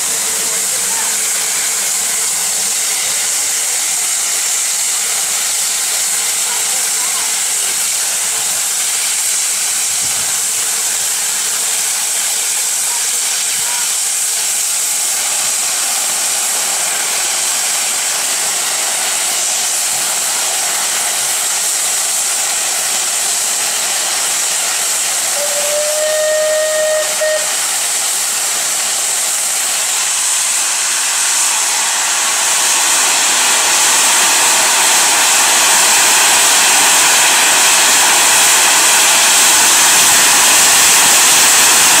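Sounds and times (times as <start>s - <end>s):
steam locomotive whistle: 0.0s - 4.8s, 24.7s - 28.8s
steam blasting from drain cocks: 0.0s - 42.0s
steam safety valve hissing: 0.0s - 42.0s.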